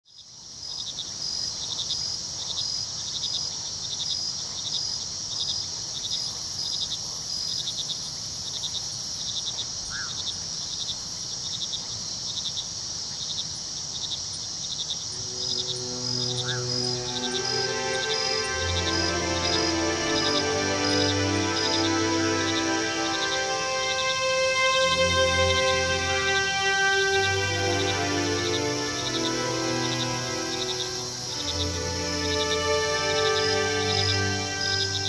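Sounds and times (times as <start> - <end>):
crickets chirping: 0.1 - 35.0
soft music: 15.2 - 35.0.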